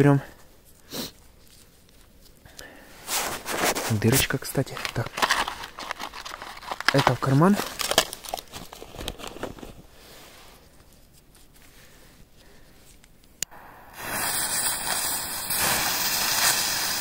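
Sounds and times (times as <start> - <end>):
fuses hissing: 13.4 - 17.0.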